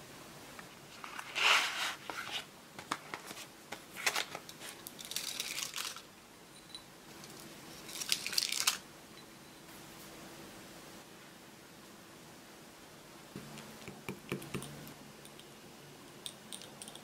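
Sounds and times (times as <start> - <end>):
foil wrapper crinkling: 4.0 - 6.1, 7.9 - 8.8.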